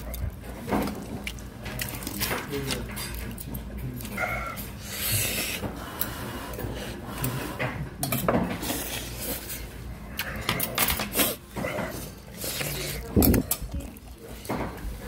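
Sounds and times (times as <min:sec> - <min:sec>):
cutlery clinking on metal bowls: 0:00.6 - 0:04.8, 0:07.6 - 0:08.7, 0:10.2 - 0:12.2.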